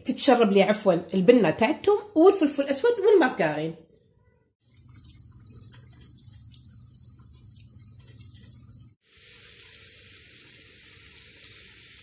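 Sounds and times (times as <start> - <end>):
food sizzling: 4.6 - 12.0
potatoes sizzling in frying pan: 4.7 - 12.0.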